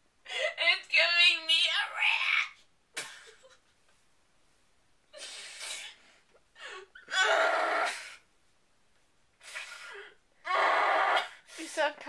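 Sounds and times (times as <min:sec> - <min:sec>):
woman sobbing: 0:00.2 - 0:00.7.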